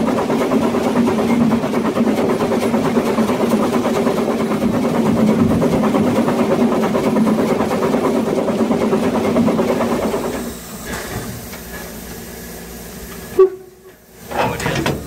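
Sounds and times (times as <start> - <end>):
steam locomotive rattle and clatter: 0.0 - 15.0
steam hissing: 1.0 - 15.0.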